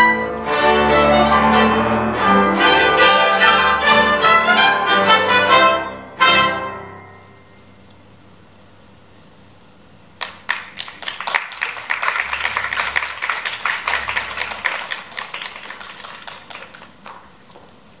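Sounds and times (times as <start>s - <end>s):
audience applause: 10.2s - 17.6s.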